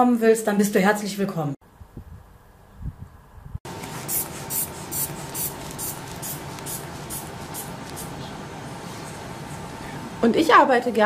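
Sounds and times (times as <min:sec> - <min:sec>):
room hum: 0:03.4 - 0:11.0.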